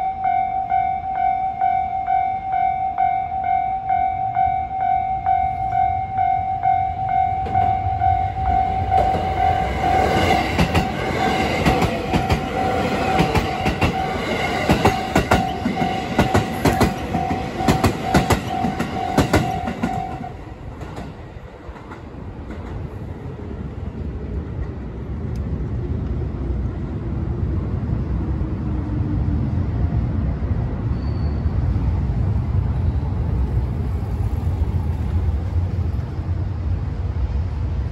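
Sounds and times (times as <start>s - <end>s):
level crossing warning bell: 0.0s - 20.5s
train running rumble: 5.4s - 37.9s
train wheels clacking: 7.2s - 23.0s.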